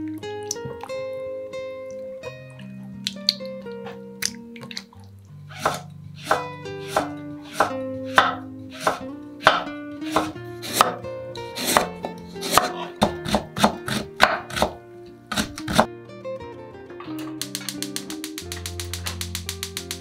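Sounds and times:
knife chopping on wooden board: 0:05.5 - 0:11.0, 0:11.6 - 0:15.9.

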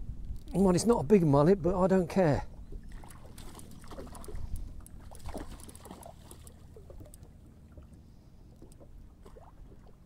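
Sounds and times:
water lapping: 0:02.1 - 0:10.0
fish splashing at water surface: 0:02.9 - 0:07.2.

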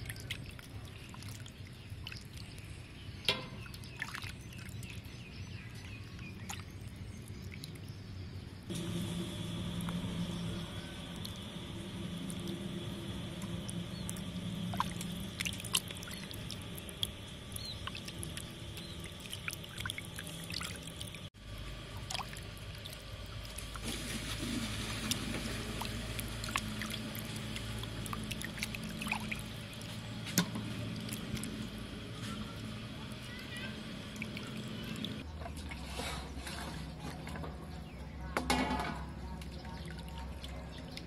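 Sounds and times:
water sloshing and splashing in bowl: 0:00.0 - 0:07.8, 0:11.0 - 0:41.0.

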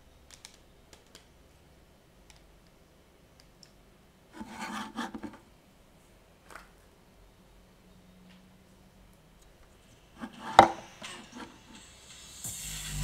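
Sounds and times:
loudspeaker scraping on cabinet: 0:04.4 - 0:05.4, 0:10.2 - 0:11.7.

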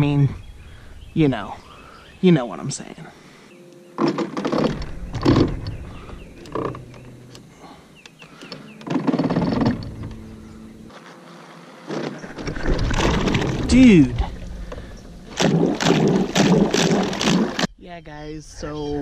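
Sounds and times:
thumps against submerged limbs: 0:04.0 - 0:06.8, 0:11.9 - 0:17.7
electric boat motor whirring: 0:08.4 - 0:11.9
water churning: 0:11.9 - 0:17.7.

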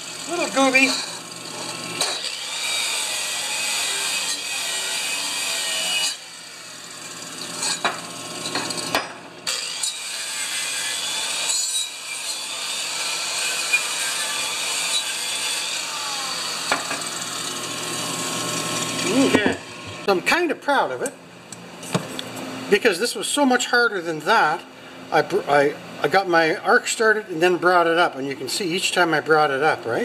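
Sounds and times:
angle grinder wire brush scrubbing steel: 0:00.0 - 0:06.3.

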